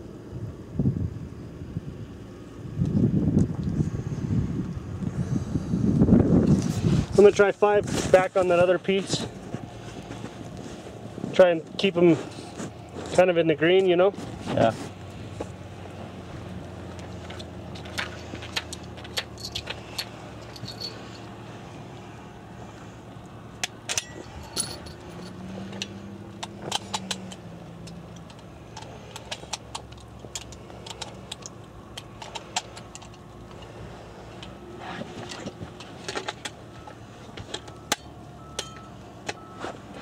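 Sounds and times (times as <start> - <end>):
low background hum: 0.0 - 40.0
metallic clicks and jingles of gear: 17.0 - 21.4, 23.6 - 33.7, 35.2 - 39.5.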